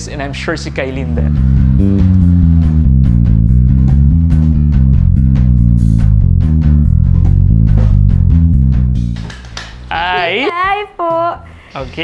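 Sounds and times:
stepping bass line: 0.8 - 9.4
background music with drum beat: 1.4 - 12.0.

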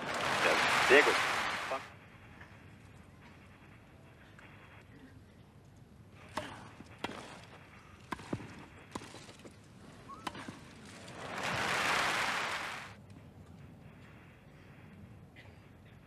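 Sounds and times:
crowd applauding: 0.0 - 1.9, 11.0 - 13.0
tennis ball bouncing: 6.3 - 7.4, 8.1 - 9.3.

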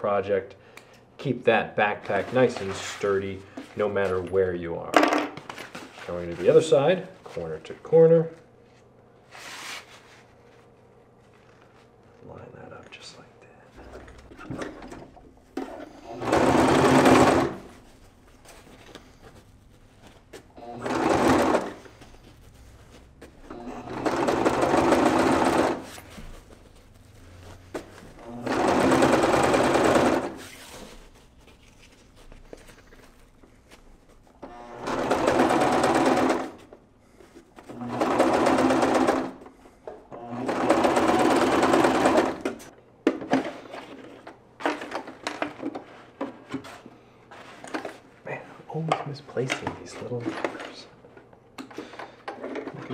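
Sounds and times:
electric sewing machine stitching: 13.8 - 17.7, 20.5 - 22.0, 23.4 - 26.0, 28.2 - 30.4, 34.4 - 36.7, 37.7 - 39.4, 40.1 - 42.7.

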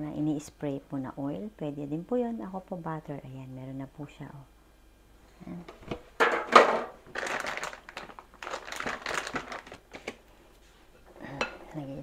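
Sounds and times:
foil pan crinkling: 6.6 - 10.2
packet rustling: 7.0 - 10.2.

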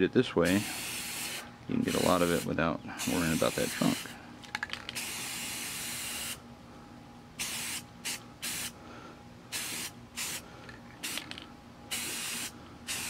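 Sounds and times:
spray paint can hissing: 0.5 - 4.1, 4.9 - 6.4, 7.4 - 8.7, 9.5 - 10.4, 11.0 - 13.0.

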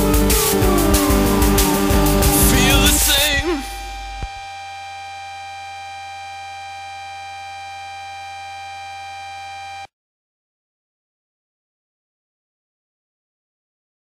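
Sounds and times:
warbling synth notes: 0.0 - 4.6
electronic music: 0.0 - 5.1
held synthesizer drone: 0.0 - 8.3.

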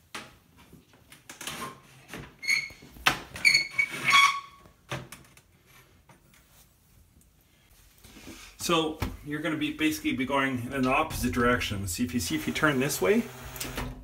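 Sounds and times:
high squeaks: 3.4 - 4.6.

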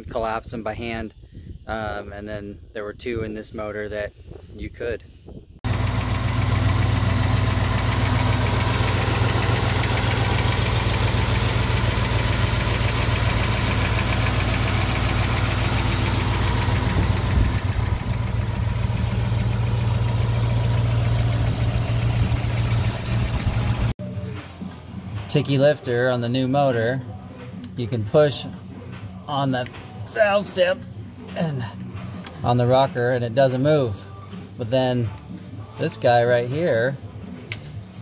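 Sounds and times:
valvetrain ticking: 5.7 - 23.9
engine starting and idling: 5.7 - 24.0.

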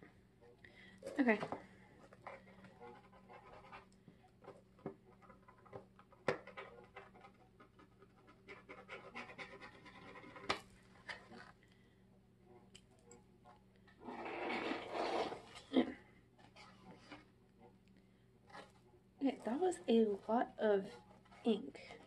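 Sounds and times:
pen nib scratching paper: 6.6 - 10.4, 18.5 - 22.0.

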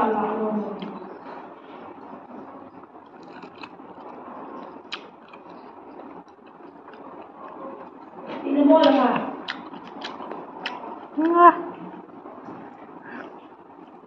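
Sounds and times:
person chewing food: 3.0 - 8.0, 9.4 - 10.8.

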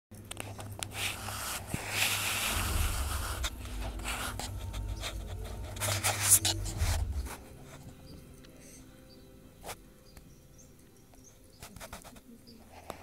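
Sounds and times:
low rumble: 0.4 - 8.7.

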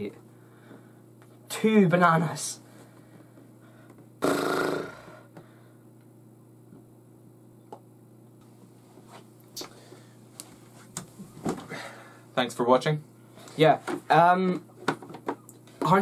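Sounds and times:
boy retching: 4.2 - 5.3.

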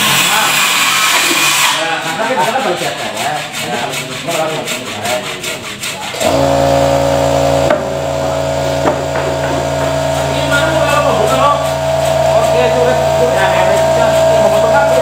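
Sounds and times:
scraping strokes on wood: 1.2 - 7.0
electric motor humming: 6.2 - 15.0.

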